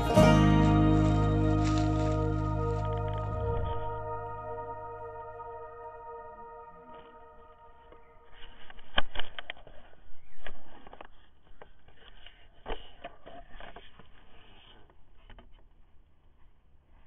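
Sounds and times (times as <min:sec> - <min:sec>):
handling noise rustles: 0:00.0 - 0:04.2.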